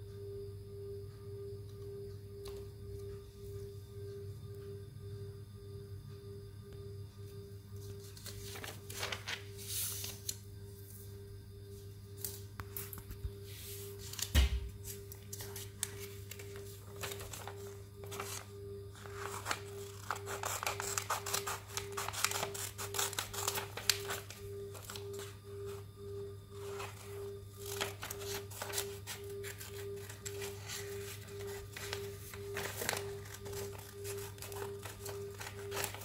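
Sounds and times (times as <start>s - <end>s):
faint pulsing tone: 0.0s - 36.0s
steady low hum: 0.0s - 36.0s
scissors snipping paper: 19.1s - 25.1s, 27.6s - 36.0s.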